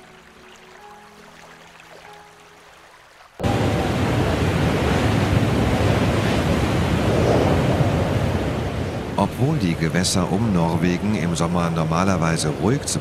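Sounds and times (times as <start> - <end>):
breaking sea waves: 3.4 - 13.0
gale-force wind: 3.4 - 13.0
wind buffeting microphone: 3.4 - 13.0.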